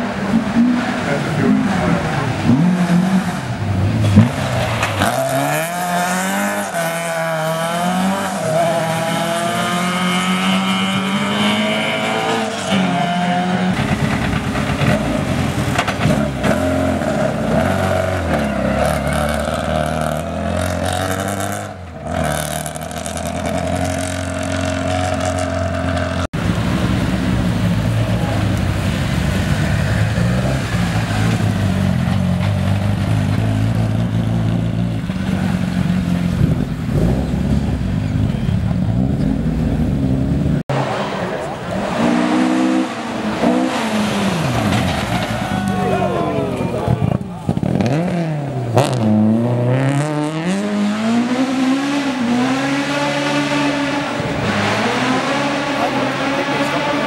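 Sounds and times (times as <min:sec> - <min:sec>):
rally car engines revving: 0:00.0 - 0:57.0.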